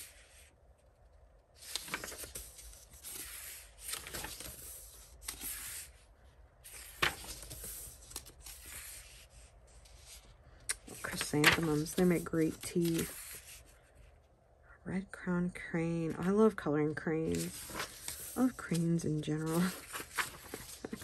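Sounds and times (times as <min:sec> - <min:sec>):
paper pages turning: 0:01.6 - 0:06.0, 0:06.6 - 0:14.2, 0:17.3 - 0:21.0.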